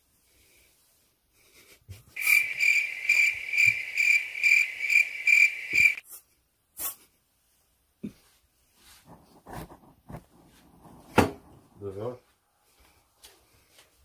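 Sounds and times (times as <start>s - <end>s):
high electronic beeping: 2.2s - 6.0s.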